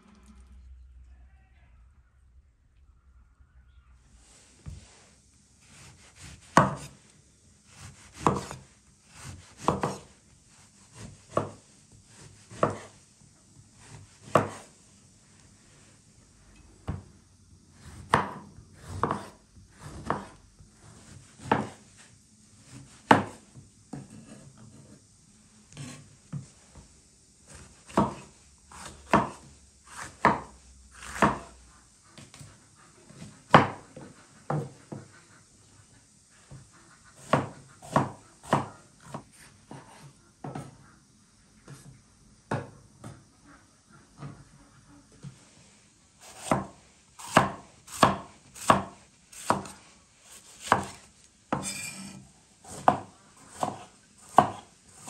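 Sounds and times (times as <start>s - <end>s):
knife slicing bell pepper: 5.7s - 7.0s, 7.7s - 10.1s, 46.2s - 55.0s.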